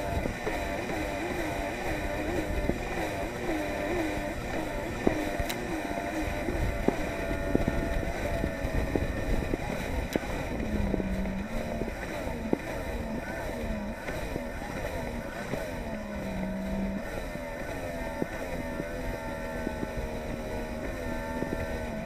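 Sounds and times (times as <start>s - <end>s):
watercraft engine running at speed: 0.0s - 22.0s
wind on microphone: 0.0s - 22.0s.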